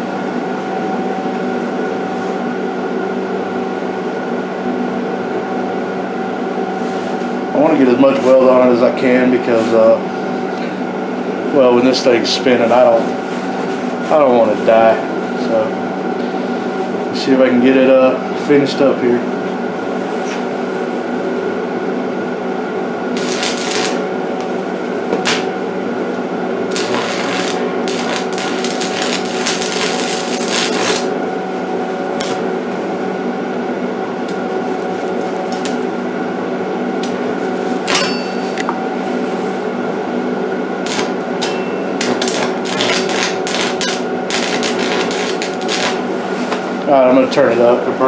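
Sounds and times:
welding arc crackling: 23.1s - 24.6s, 25.2s - 25.5s, 26.7s - 31.2s, 32.1s - 32.4s, 35.5s - 35.9s, 40.8s - 46.1s
welder hum: 23.1s - 33.3s, 34.0s - 36.4s, 37.0s - 47.8s.

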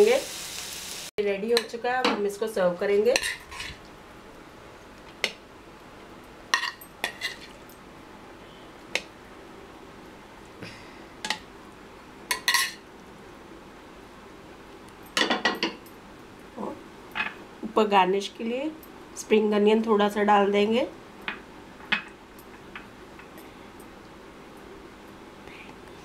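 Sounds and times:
metal spoon clinking on pan and plate: 3.0s - 3.7s, 6.6s - 7.6s, 12.3s - 12.8s.

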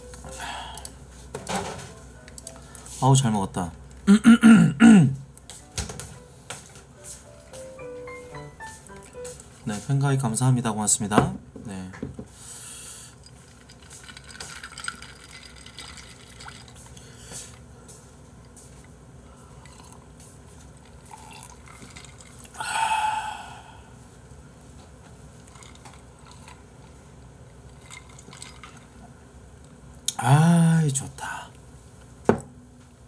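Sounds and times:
ice shifting in glass: 13.6s - 16.8s
person sipping and swallowing: 19.6s - 20.0s, 21.1s - 23.6s.

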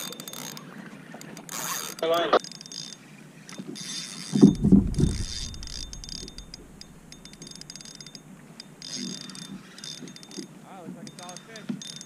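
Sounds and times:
fishing reel clicking: 0.0s - 12.0s
loud low thump: 4.4s - 7.6s.

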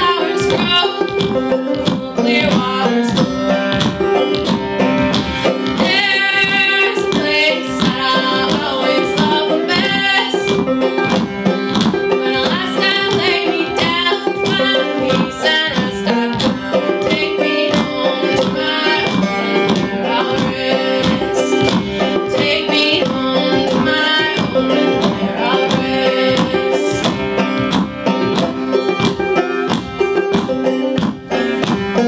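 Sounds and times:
woman singing: 0.0s - 3.4s, 5.7s - 10.7s, 12.2s - 27.2s
acoustic string band playing: 0.0s - 32.0s.

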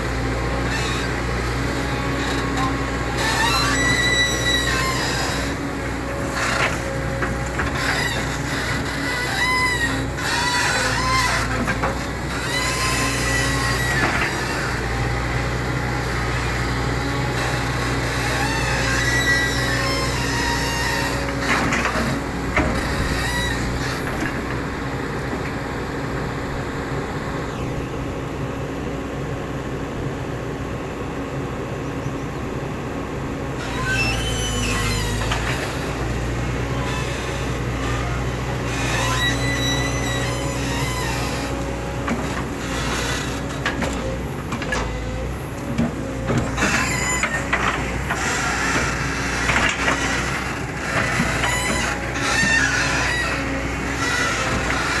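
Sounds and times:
diesel engine under load: 0.0s - 55.0s
hydraulics whining: 0.0s - 55.0s
metal parts squealing: 0.6s - 14.8s, 17.4s - 24.5s, 33.6s - 36.0s, 36.7s - 45.0s, 46.4s - 55.0s.

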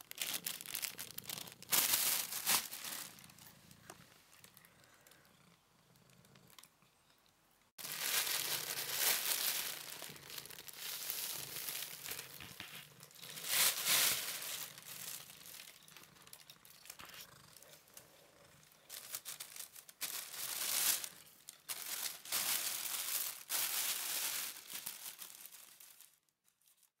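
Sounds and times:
plastic bag crinkling: 0.0s - 4.7s, 7.8s - 18.1s, 18.8s - 26.9s.

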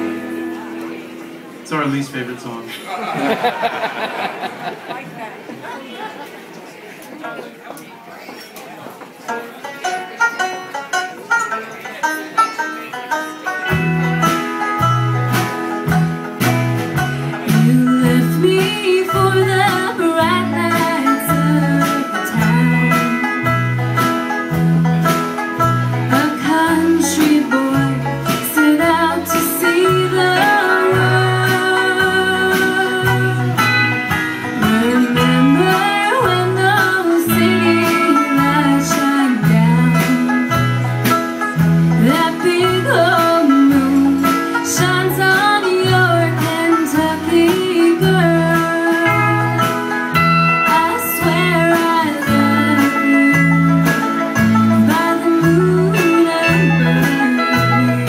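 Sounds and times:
banjo and acoustic guitar picking: 0.0s - 6.6s, 8.2s - 58.0s
electric bass walking: 13.6s - 58.0s
woman singing: 17.4s - 23.6s, 26.0s - 33.9s, 34.6s - 40.7s, 42.0s - 49.8s, 50.4s - 58.0s.

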